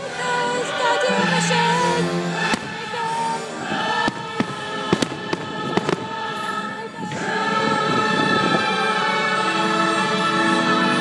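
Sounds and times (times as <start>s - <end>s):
music: 0.0s - 11.0s
fireworks bangs: 2.4s - 3.2s, 3.8s - 6.4s.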